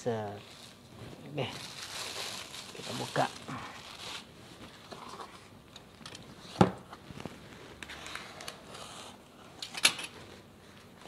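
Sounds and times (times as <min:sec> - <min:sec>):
cardboard parcel rustling: 0:00.2 - 0:05.5.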